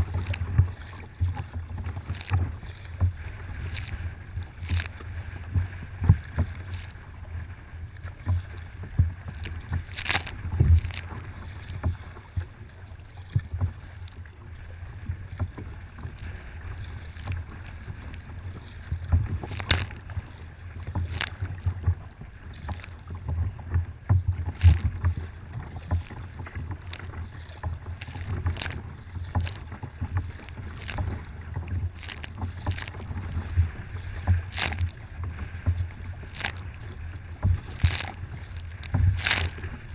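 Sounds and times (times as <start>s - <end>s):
wind buffeting microphone: 0.0s - 13.9s
water slapping against kayak: 0.0s - 39.9s.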